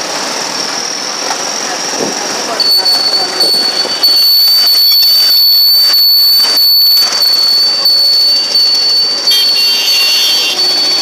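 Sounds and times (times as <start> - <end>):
constant high-pitched whine: 0.0 - 11.0
vehicle interior road noise: 0.0 - 11.0.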